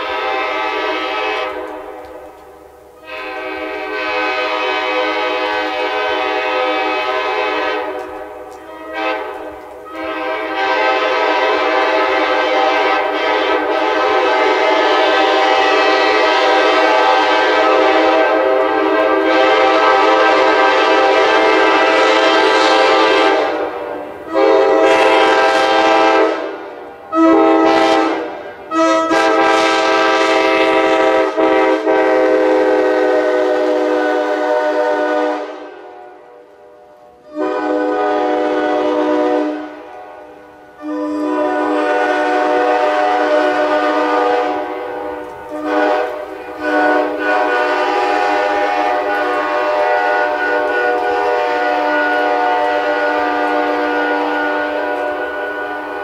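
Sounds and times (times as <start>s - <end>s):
train horn chord blasts: 0.0s - 56.0s.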